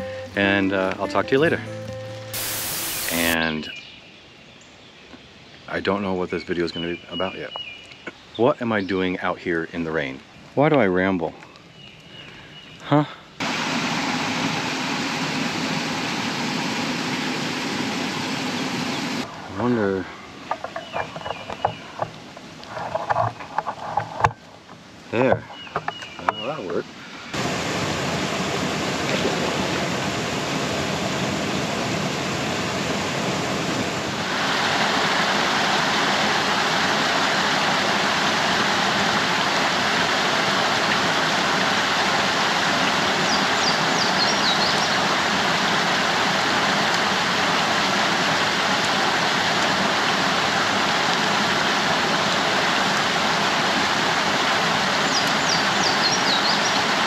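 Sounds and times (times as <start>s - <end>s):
falling rain: 0.0s - 3.6s, 8.7s - 23.3s, 26.0s - 57.0s
waterfall pouring into pool: 2.3s - 3.6s, 13.4s - 20.0s, 27.3s - 57.0s.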